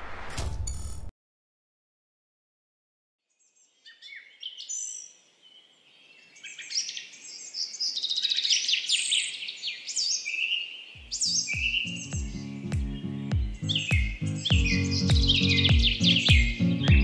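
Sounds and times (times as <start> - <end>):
goldfinches twittering and singing: 10.0 - 17.0.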